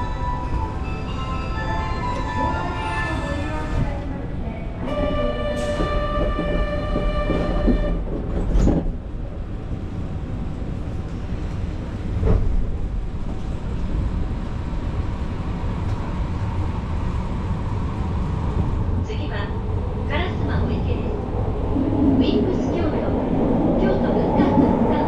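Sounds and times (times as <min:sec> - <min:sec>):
subway train rumble: 0:00.0 - 0:25.0
train knocks: 0:04.8 - 0:09.0.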